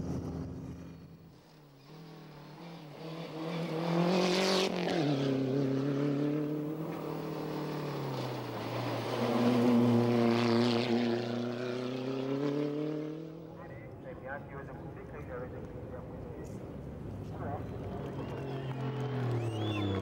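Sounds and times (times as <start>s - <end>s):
rally car engine passing by: 1.8s - 13.7s, 17.6s - 20.0s.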